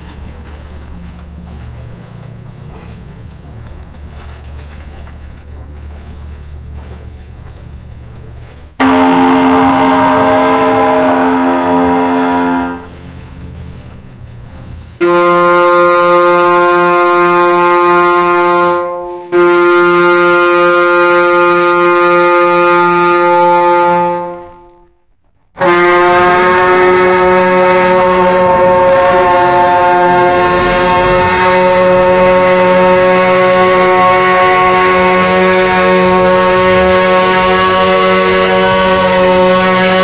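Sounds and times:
ship's horn blasts: 8.7 - 40.0.

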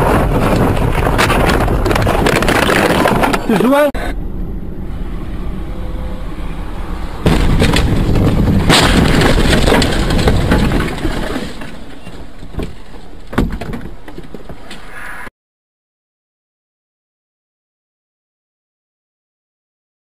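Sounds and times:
road noise: 0.0 - 15.3
rumbling and scraping: 0.0 - 15.3
loud car crash impact: 7.2 - 11.9.

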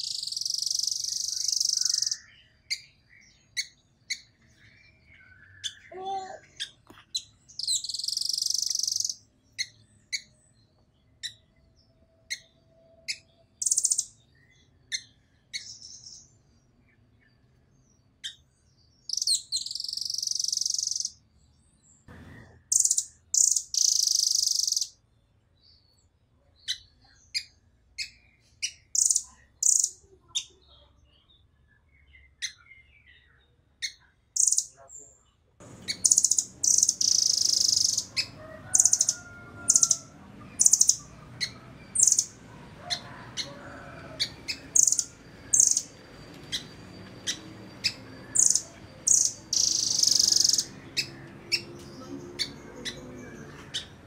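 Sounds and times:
bird rapid trills: 0.0 - 2.2, 7.6 - 9.2, 19.1 - 21.1, 22.7 - 24.9, 35.7 - 51.6
bird calling with sharp chips: 0.0 - 2.9, 5.5 - 10.3, 19.0 - 21.2, 22.1 - 25.0, 35.6 - 43.6, 44.2 - 51.6.

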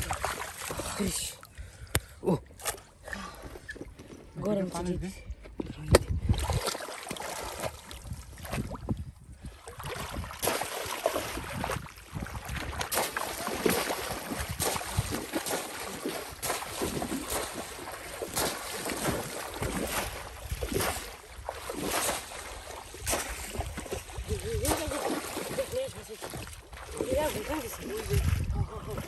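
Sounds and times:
legs wading through water: 0.0 - 1.9, 6.0 - 29.0
fish traps splashing in water: 6.3 - 8.7, 9.7 - 28.2.

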